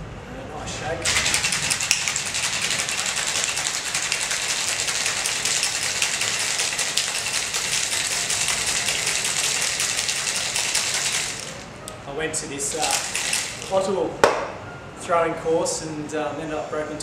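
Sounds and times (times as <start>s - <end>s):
ice rattling in cocktail shaker: 1.0s - 11.7s, 12.6s - 13.9s.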